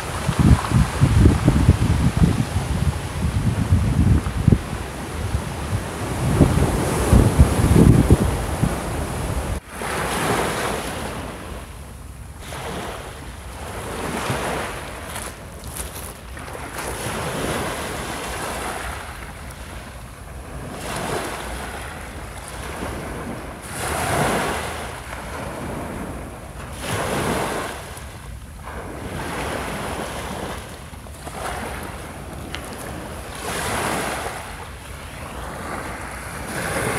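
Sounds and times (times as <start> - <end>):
waves washing up a pebble beach: 12.4 - 19.8, 20.4 - 28.0, 28.6 - 34.6, 35.3 - 36.9.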